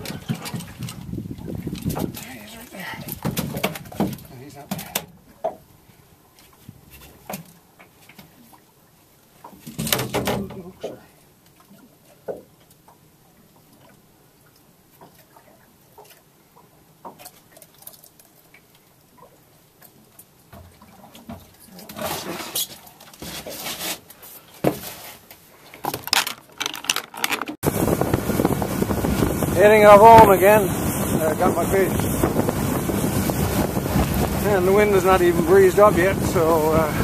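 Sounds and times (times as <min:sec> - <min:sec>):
wind rushing on microphone: 0:00.0 - 0:03.3, 0:27.6 - 0:37.0
hands handling fish and gear: 0:21.8 - 0:27.6.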